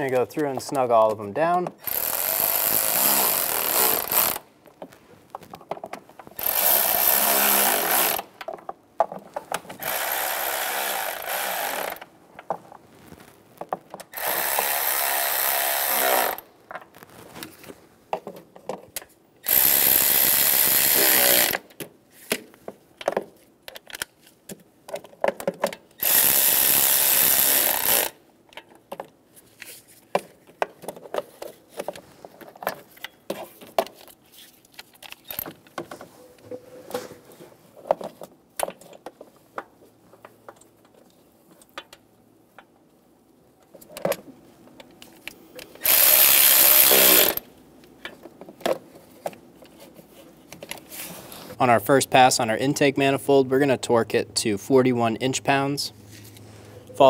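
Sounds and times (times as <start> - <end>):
cordless power tool running: 45.8 - 47.4.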